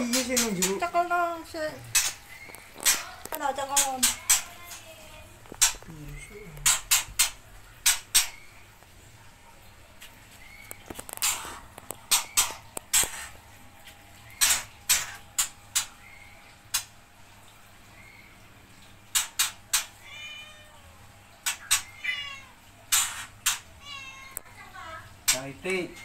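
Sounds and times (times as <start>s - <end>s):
cat meowing: 20.0s - 21.0s, 21.9s - 22.6s, 23.8s - 24.6s.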